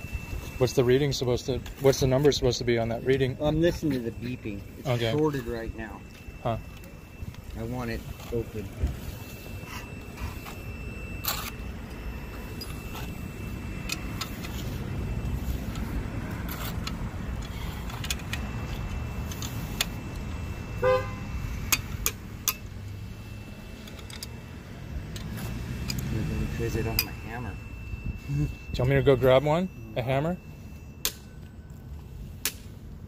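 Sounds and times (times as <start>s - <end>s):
multimeter continuity buzzer tone: 0.0s - 32.4s
low outdoor rumble: 0.0s - 33.0s
horn toot: 20.8s - 21.3s.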